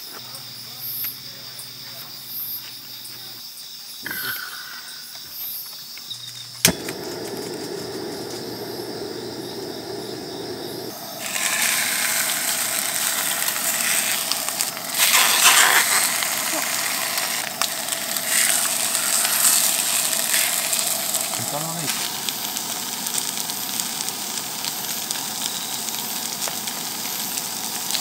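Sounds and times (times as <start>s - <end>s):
crickets chirping: 0.0s - 27.9s
gas burner hissing: 6.5s - 28.0s.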